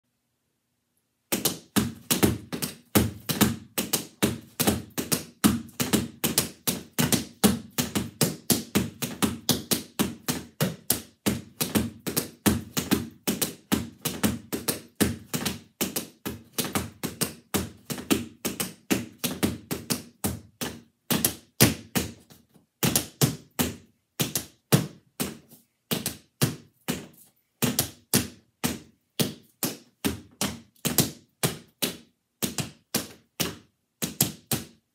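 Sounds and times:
tap shoes striking floor: 1.3 - 34.8.

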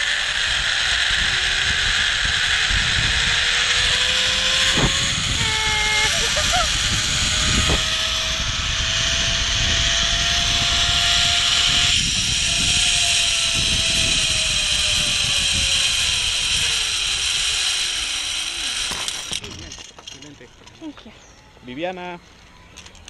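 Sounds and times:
wind rushing on microphone: 0.0 - 17.7
zip line pulleys whining: 0.0 - 20.9.

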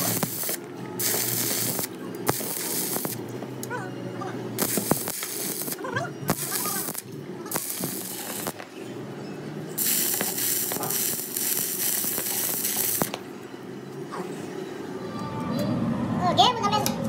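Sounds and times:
welding arc crackling: 0.0 - 3.8, 4.5 - 8.7, 9.7 - 13.3.

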